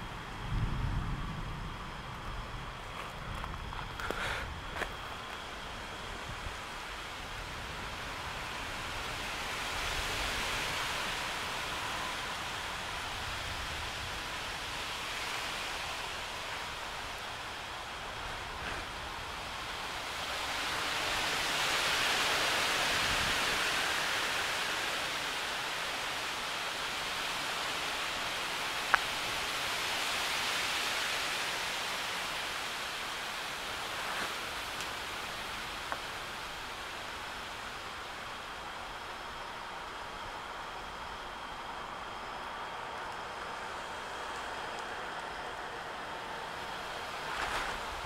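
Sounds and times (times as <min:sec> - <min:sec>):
rain falling: 0:00.0 - 0:48.0.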